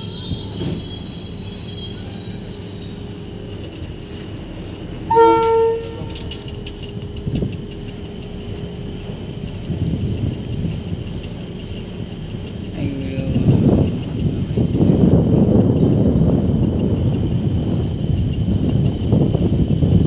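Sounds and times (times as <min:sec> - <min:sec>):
electric train running: 0:00.0 - 0:20.0
train horn blast: 0:05.1 - 0:06.4.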